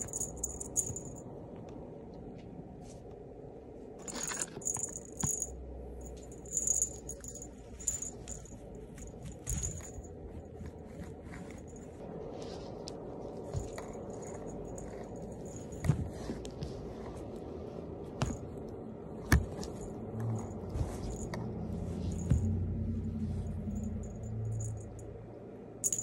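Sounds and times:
cat toy jingling and rattling: 0:00.0 - 0:01.2, 0:04.0 - 0:12.0, 0:13.5 - 0:16.4, 0:19.7 - 0:25.1
small bell ringing: 0:00.0 - 0:01.2, 0:04.1 - 0:08.6, 0:23.5 - 0:25.1.

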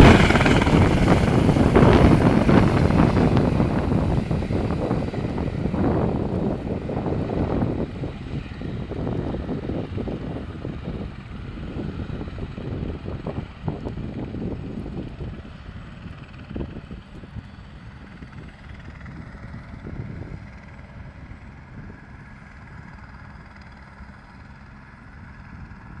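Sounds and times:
helicopter flying: 0:00.0 - 0:26.0.

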